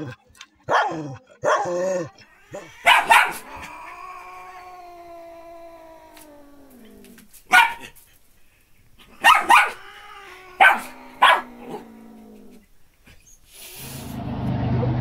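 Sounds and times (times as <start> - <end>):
dog howling: 0.9 - 7.7, 9.2 - 12.6
small dog yipping barks: 2.8 - 3.4, 7.5 - 7.9, 9.2 - 9.8, 10.6 - 11.5.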